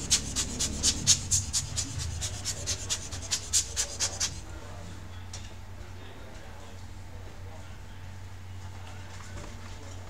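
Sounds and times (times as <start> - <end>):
air blower puffs: 0.0 - 4.4.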